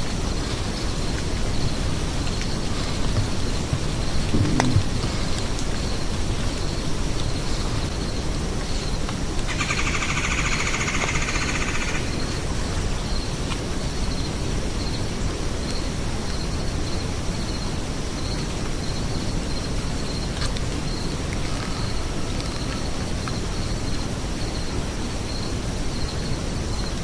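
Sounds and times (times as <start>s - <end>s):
wind rumble on microphone: 0.0s - 9.4s.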